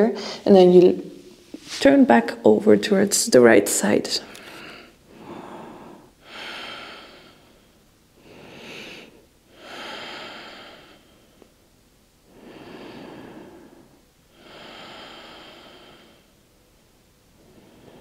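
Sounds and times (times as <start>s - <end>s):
woman breathing deeply: 0.2s - 0.4s, 4.3s - 11.6s, 12.2s - 16.4s, 17.4s - 18.0s.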